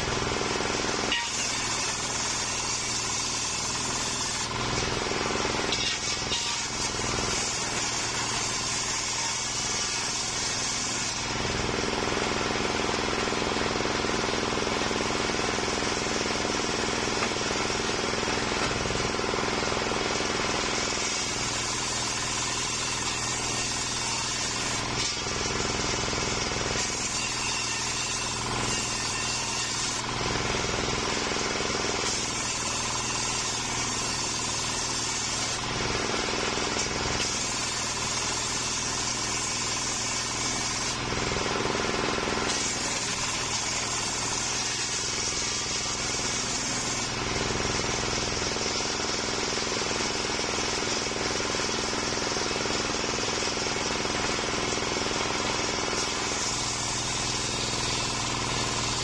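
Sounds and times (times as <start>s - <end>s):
circular saw cutting wood: 0.0s - 59.0s
stationary engine running: 0.0s - 59.0s.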